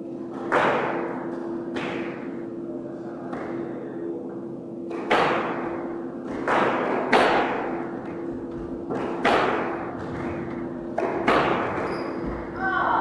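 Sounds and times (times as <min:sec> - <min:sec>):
squash ball impacts: 0:00.3 - 0:02.5, 0:04.9 - 0:12.6.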